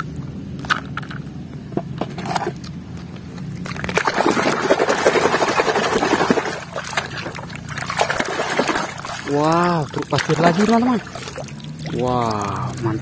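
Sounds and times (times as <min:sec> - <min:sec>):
toy splashing in muddy water: 0:03.6 - 0:13.0.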